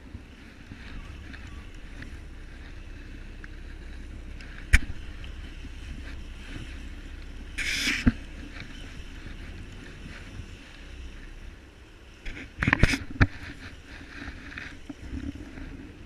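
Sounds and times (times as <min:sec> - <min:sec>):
boat engine low rumble: 0:00.0 - 0:16.0
short hiss: 0:07.5 - 0:08.2.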